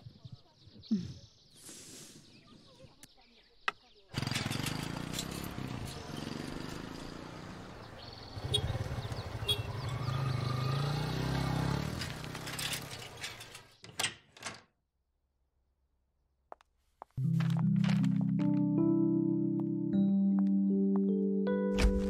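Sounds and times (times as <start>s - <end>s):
motorbike engines passing: 4.2s - 13.7s
street traffic: 4.2s - 13.8s.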